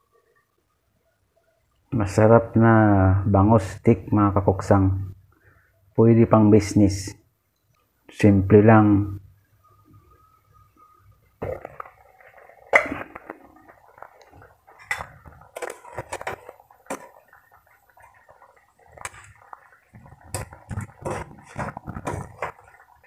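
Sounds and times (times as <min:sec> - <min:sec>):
fish simmering in sauce crackling: 0:09.0 - 0:23.0.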